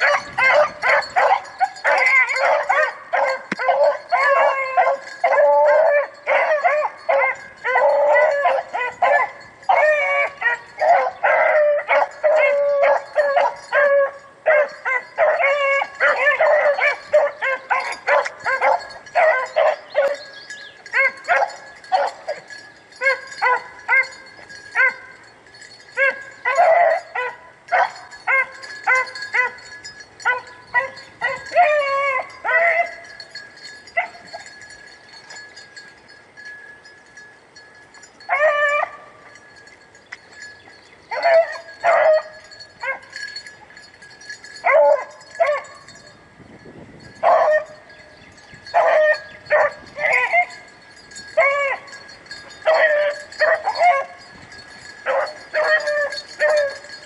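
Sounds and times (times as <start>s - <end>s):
hounds baying and yelping: 0.0s - 46.1s, 47.1s - 57.0s.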